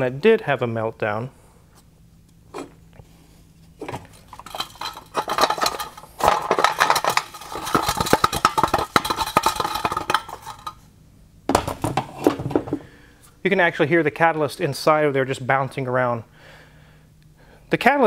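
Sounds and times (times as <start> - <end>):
loose pieces rattling in metal shell: 3.9 - 10.8.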